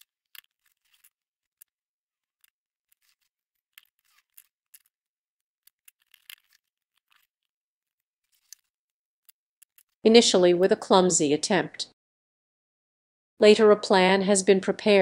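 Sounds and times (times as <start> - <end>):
fingers clicking and scratching plastic tape: 0.0 - 10.0.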